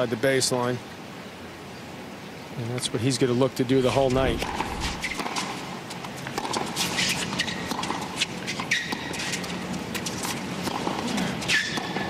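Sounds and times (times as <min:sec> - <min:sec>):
rackets hitting tennis ball: 0:03.9 - 0:05.6, 0:06.2 - 0:12.0
sneakers squeaking on court: 0:04.0 - 0:05.5, 0:06.4 - 0:12.0.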